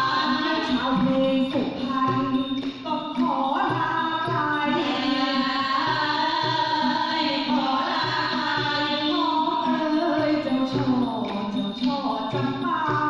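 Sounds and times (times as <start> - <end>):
hand drum beat: 0.0 - 13.0
folk singing: 3.0 - 12.8.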